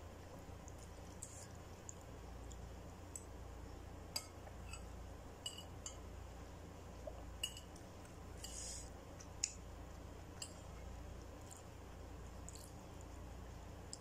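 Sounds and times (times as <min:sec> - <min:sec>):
spoon clinking on ceramic bowl: 0:04.2 - 0:06.0.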